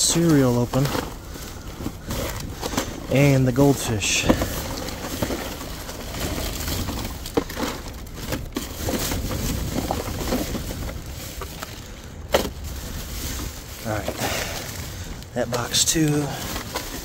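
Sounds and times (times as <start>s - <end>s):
plastic garbage bag rustling: 0.0s - 17.0s.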